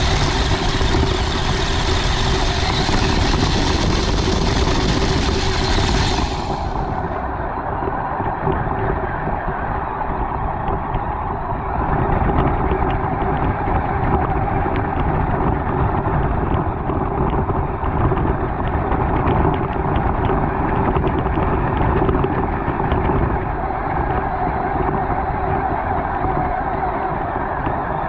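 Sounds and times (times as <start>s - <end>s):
rc car drivetrain whine: 0.0s - 7.5s
rumble: 0.0s - 28.0s
wind on microphone: 0.0s - 28.0s.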